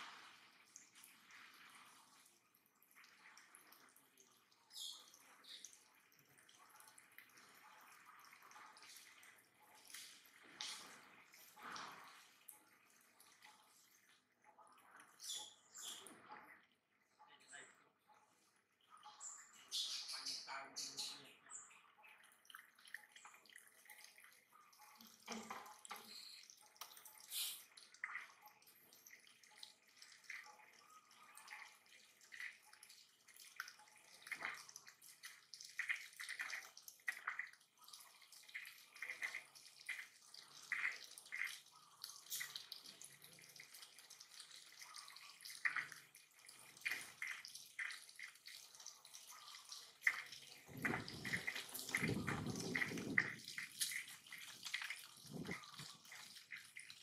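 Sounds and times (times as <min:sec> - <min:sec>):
water spattering onto tiles: 0:38.4 - 0:57.0.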